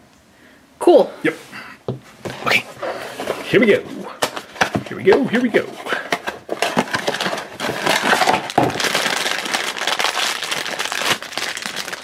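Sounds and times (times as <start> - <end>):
cardboard box opening: 2.3 - 9.0
foil bag crinkling: 4.5 - 12.0.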